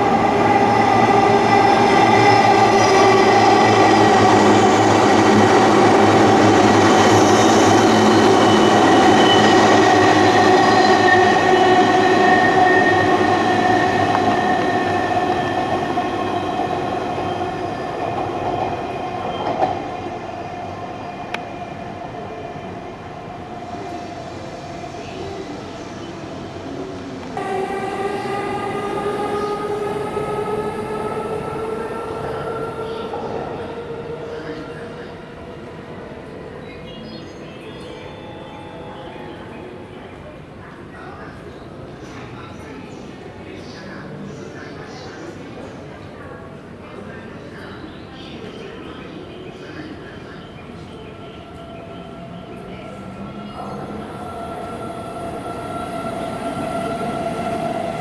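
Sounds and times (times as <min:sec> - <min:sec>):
electric train running past: 0:00.0 - 0:45.9, 0:47.7 - 0:58.0.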